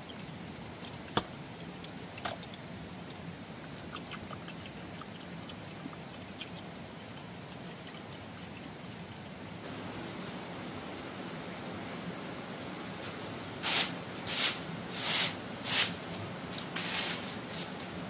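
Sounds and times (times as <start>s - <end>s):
water trickling and dripping: 0.0s - 9.6s.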